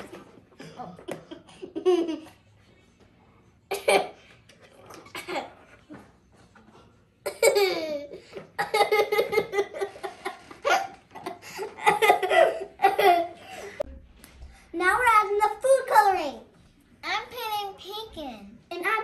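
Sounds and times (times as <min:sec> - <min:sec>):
girls giggling: 0:00.5 - 0:02.4, 0:07.4 - 0:13.9.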